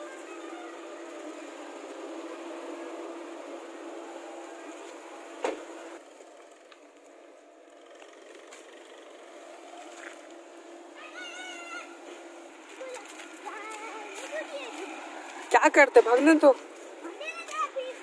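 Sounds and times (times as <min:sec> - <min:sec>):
small car engine running: 0:00.0 - 0:18.0.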